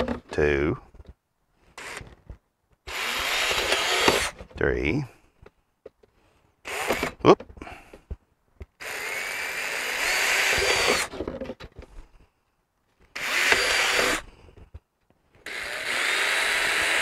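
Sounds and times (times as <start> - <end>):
cordless drill boring plastic: 1.8 - 2.2, 2.9 - 4.4, 6.7 - 7.2, 8.8 - 11.3, 13.1 - 14.3, 15.4 - 17.0.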